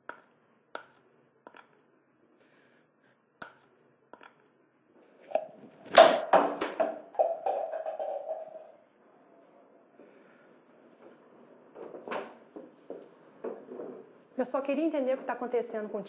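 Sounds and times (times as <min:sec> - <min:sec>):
paint splatting on wall: 0:05.9 - 0:08.1
paintbrush tapping paint pot: 0:07.2 - 0:08.6.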